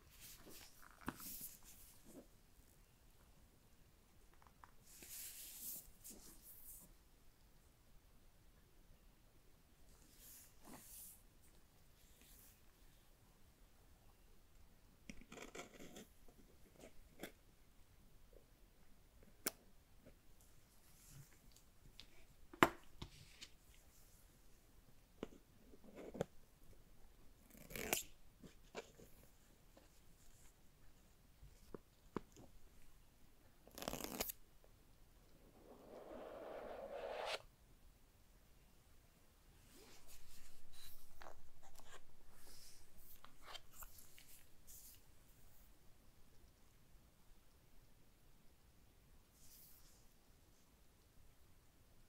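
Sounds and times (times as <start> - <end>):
cardboard sliding on cardboard: 35.6 - 37.4.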